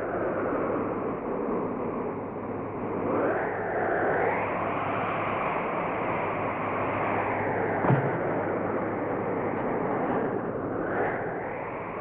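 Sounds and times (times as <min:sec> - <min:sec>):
snowstorm wind: 0:00.0 - 0:12.0
sharp thud: 0:07.8 - 0:08.2.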